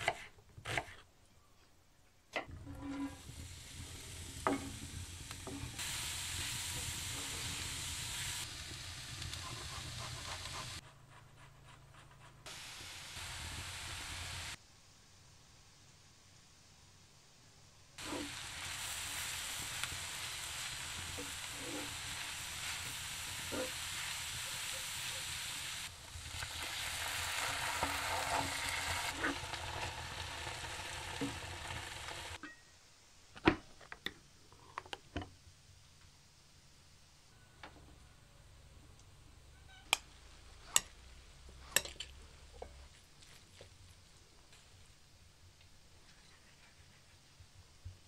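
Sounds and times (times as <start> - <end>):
vegetables sizzling in oil: 3.1 - 10.8, 12.5 - 14.6, 18.0 - 32.4.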